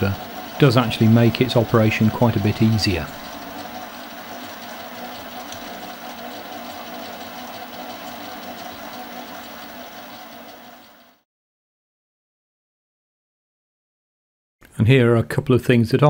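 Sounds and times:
lathe motor humming and whirring: 0.0 - 11.2.

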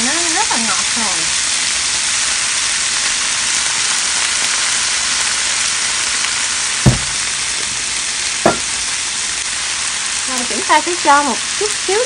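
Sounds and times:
corn sizzling in frying pan: 0.0 - 12.0
sharp knock: 6.9 - 7.3, 8.4 - 8.8.

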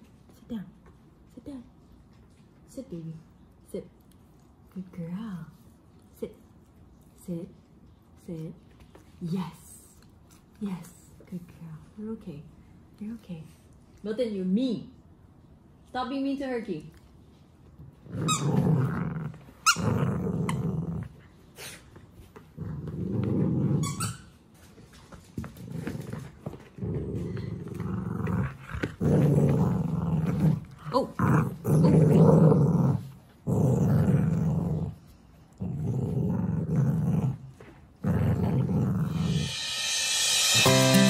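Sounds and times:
dog growling: 18.0 - 21.7, 22.6 - 24.0, 25.6 - 39.5.

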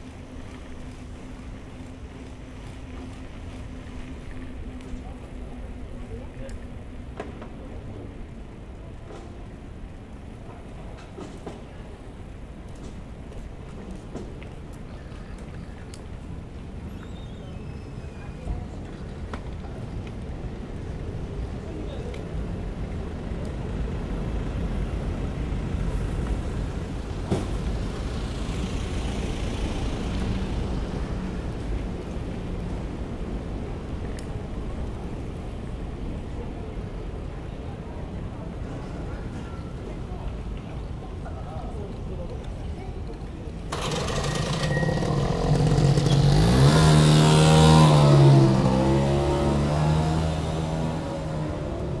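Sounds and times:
bicycle road noise: 0.0 - 52.0
engine revving: 43.7 - 52.0.

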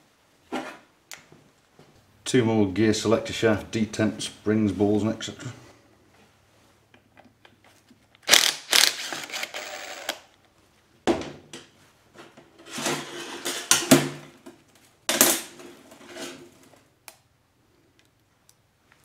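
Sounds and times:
power driver motor whir and rattle: 8.3 - 10.2.

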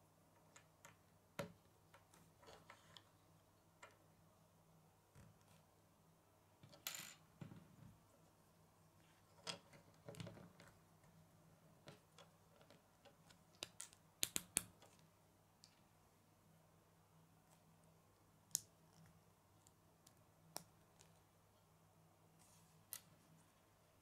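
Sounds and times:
plastic bricks clicking on wooden table: 11.9 - 15.0.

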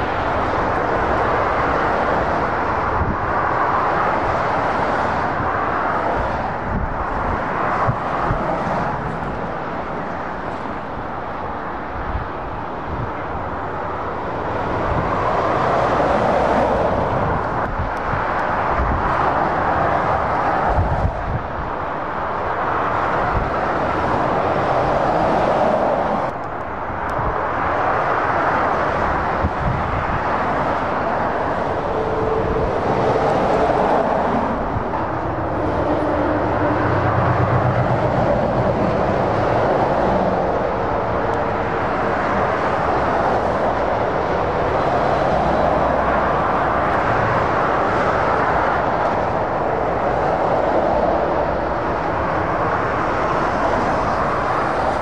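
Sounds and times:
tyres roaring on road: 0.0 - 55.0
engine drone: 21.6 - 55.0.

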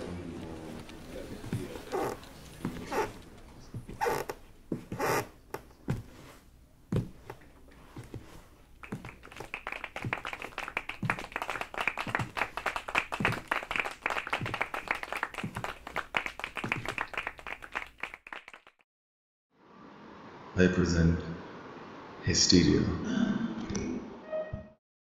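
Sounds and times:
crowd applauding: 8.8 - 18.8.

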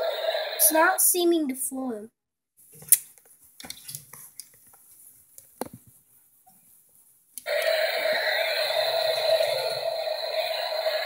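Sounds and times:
toy fan motor humming: 7.4 - 11.0.

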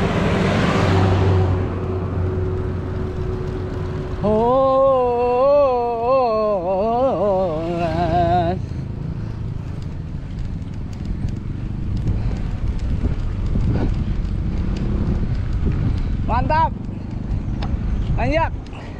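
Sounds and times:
bike tyre noise: 0.0 - 18.9
wind rushing over microphone: 0.0 - 18.9
person singing a long ohhh: 4.2 - 8.6.

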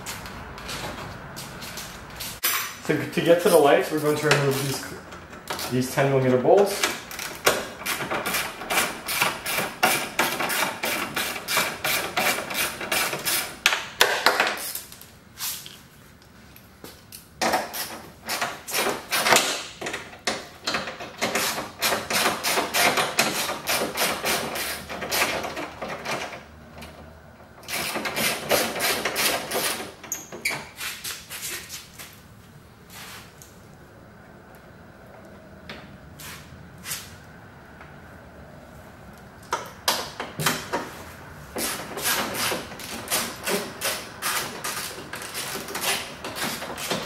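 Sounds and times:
hand ratchet clicking: 41.6 - 47.0.

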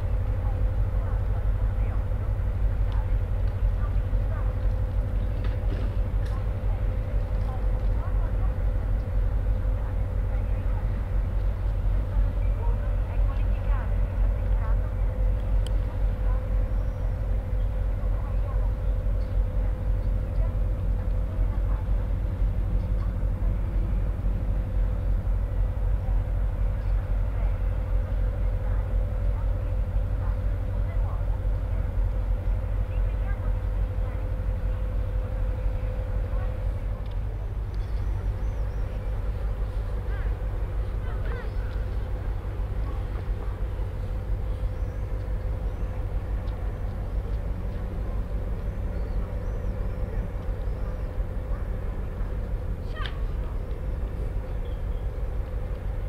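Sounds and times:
constant hum: 0.0 - 56.0
ferry engines rumbling: 0.0 - 56.0.

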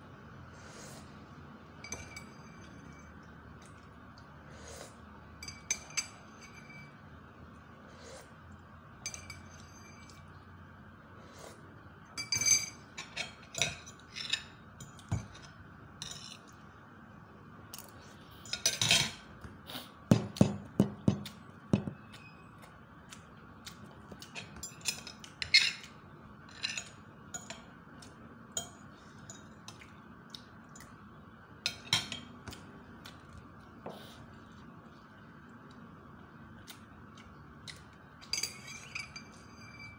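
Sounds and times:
cutlery clinking on a plate: 38.2 - 39.9.

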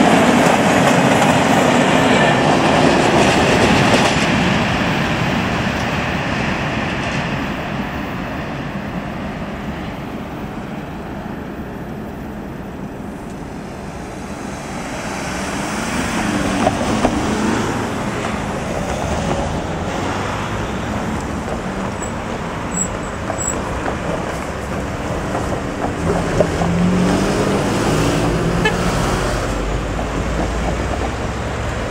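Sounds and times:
engine and tyre noise: 0.0 - 31.9
vehicles passing over level crossing: 12.4 - 31.9.

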